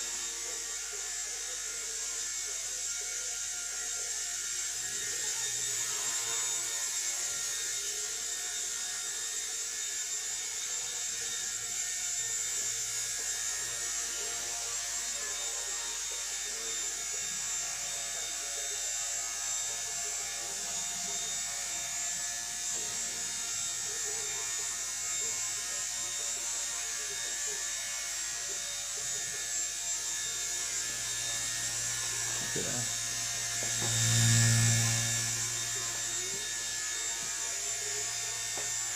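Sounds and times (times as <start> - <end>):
rc helicopter rotor buzz: 0.0 - 38.9.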